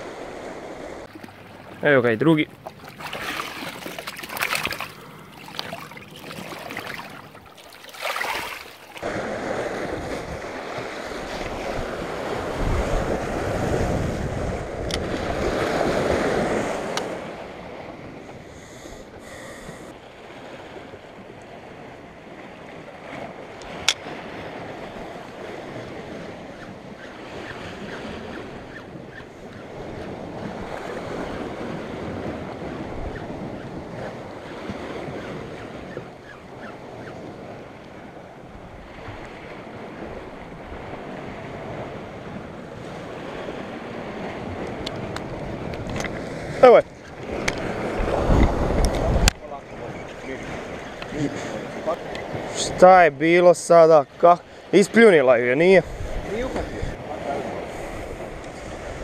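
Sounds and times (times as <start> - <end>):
surf washing against rocks: 0.0 - 18.2, 38.6 - 59.0
wind buffeting microphone: 9.0 - 18.5, 19.7 - 52.8, 55.7 - 59.0.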